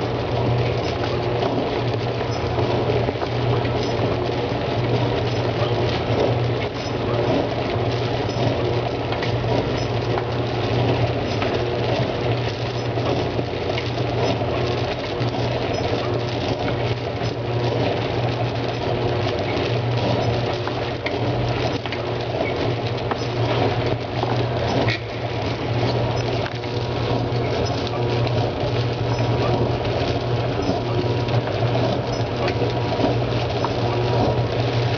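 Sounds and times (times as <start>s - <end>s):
low machine hum: 0.0s - 34.9s.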